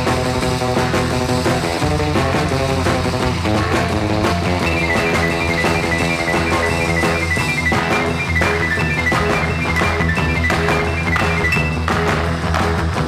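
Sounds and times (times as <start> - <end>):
steady drum beat: 0.0 - 12.4
high stepping melody: 4.6 - 12.1.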